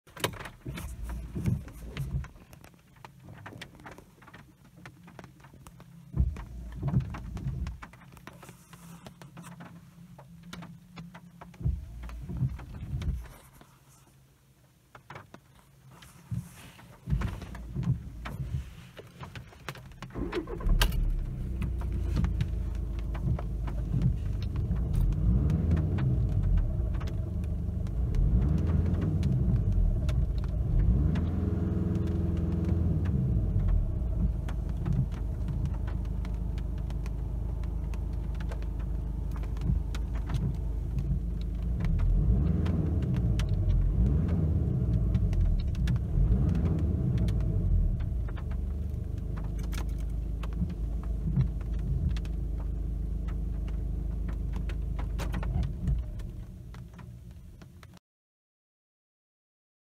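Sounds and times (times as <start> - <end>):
knocks and thumps in car cabin: 0.1 - 13.7, 16.2 - 31.2
diesel engine revving: 20.1 - 56.2.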